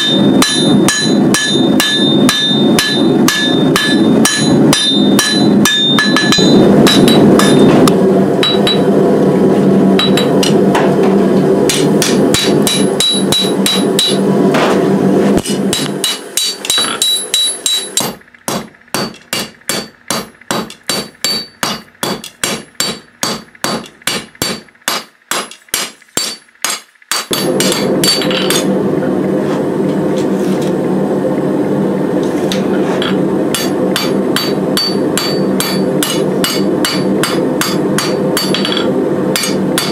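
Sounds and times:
hammer ringing on anvil: 0.0 - 7.8, 8.4 - 8.9, 10.0 - 10.6, 11.7 - 14.2, 15.7 - 28.7, 33.0 - 39.9
gas forge rushing: 0.0 - 26.3, 27.0 - 39.9.

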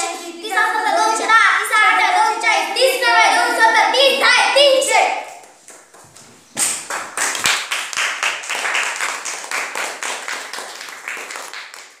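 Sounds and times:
children clapping: 6.6 - 12.0.

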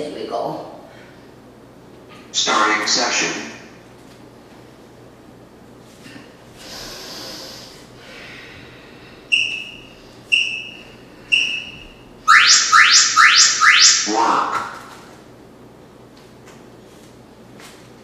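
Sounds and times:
short timer beeps: 9.3 - 14.1
rising electronic chirps: 9.3 - 14.8.

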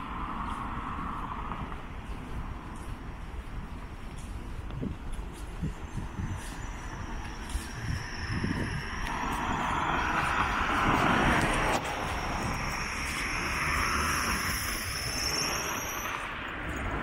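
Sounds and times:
cars passing: 0.0 - 17.0
faint high whine: 5.6 - 10.9, 11.7 - 17.0.

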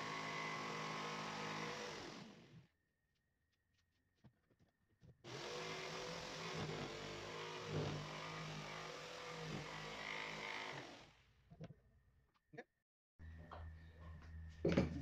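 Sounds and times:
jigsaw cutting board: 0.0 - 2.6, 5.3 - 11.1.

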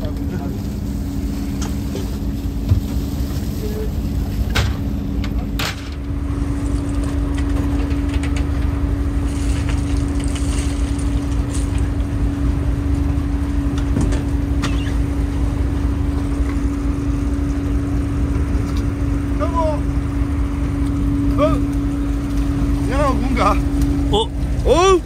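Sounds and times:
boat engine droning: 0.0 - 25.0.

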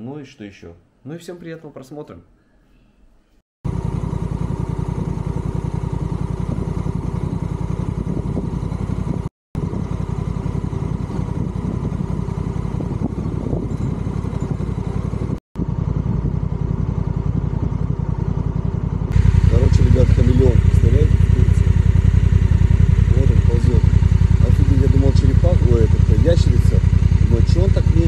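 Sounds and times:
motorcycle engine running: 3.6 - 28.0.

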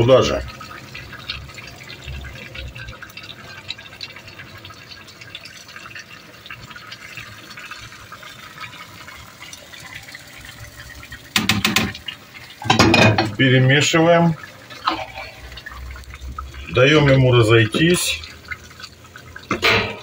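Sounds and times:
stew bubbling in a pot: 0.0 - 20.0
utensil clattering against pot: 11.3 - 13.4, 19.4 - 20.0.

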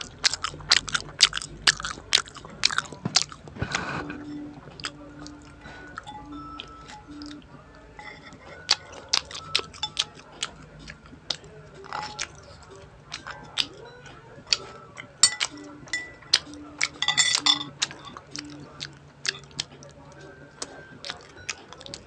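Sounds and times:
chewing: 0.0 - 22.0
fork scraping a plate: 8.0 - 8.5.

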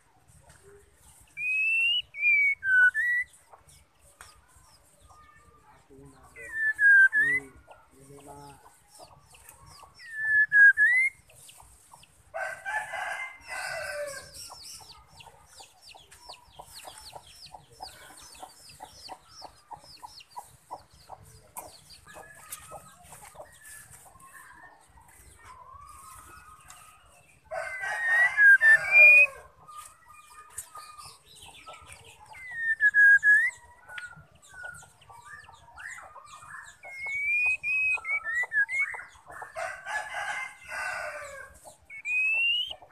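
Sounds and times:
bird whistled calls: 1.3 - 3.4, 6.4 - 7.5, 10.0 - 11.3, 32.3 - 36.1, 36.8 - 39.1, 41.9 - 42.8
rooster crowing: 12.4 - 14.3, 27.5 - 29.5, 39.6 - 41.6.

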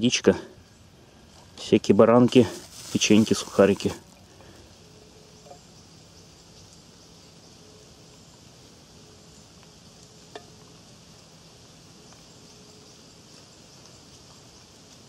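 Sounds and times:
faint steady high hiss: 0.0 - 15.0.

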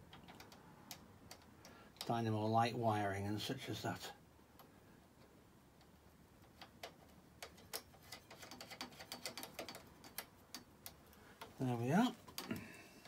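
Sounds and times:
small metal clicks and taps: 0.0 - 2.1, 4.6 - 11.6.

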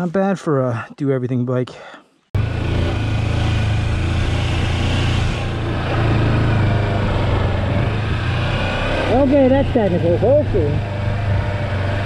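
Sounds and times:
rushing noise: 2.4 - 9.2
motorcycle engine running: 2.4 - 12.0.

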